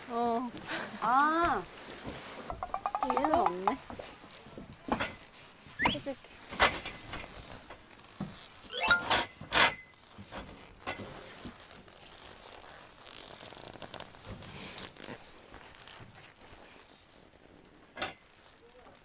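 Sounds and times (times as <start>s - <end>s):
tent fabric rustling: 0.0s - 2.5s, 4.0s - 19.0s
tent zipper being pulled: 5.1s - 19.0s.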